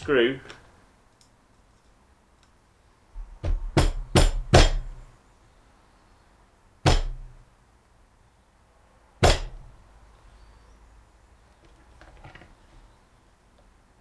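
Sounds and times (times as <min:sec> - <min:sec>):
hammer tapping metal: 0:03.4 - 0:05.0, 0:06.9 - 0:07.4, 0:09.2 - 0:09.6.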